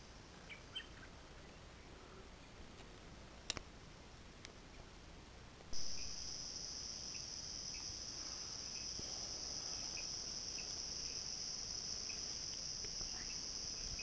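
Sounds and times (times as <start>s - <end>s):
high-pitched insect trill: 5.8s - 14.0s
faint ticks: 12.1s - 14.0s.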